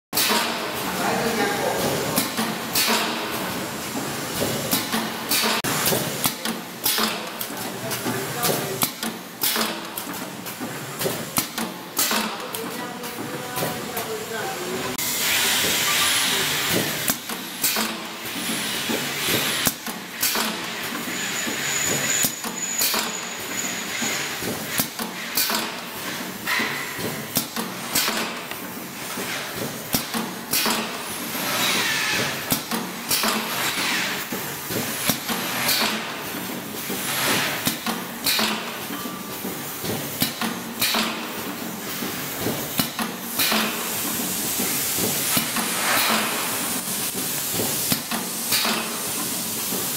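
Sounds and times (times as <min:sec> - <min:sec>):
packing machine clacks: 0:00.2 - 0:14.8, 0:15.5 - 0:49.9
pneumatic air hisses: 0:15.0 - 0:28.3, 0:28.9 - 0:36.1, 0:41.8 - 0:49.9.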